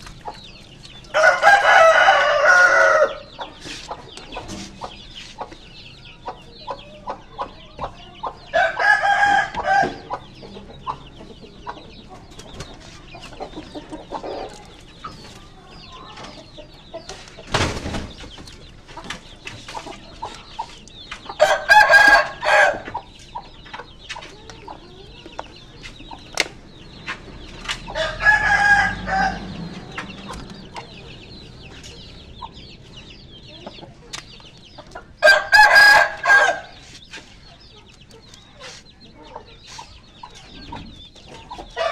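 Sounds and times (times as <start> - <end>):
rooster crowing: 1.2 - 3.3, 8.6 - 10.0, 21.4 - 22.8, 28.0 - 29.6, 35.2 - 36.8.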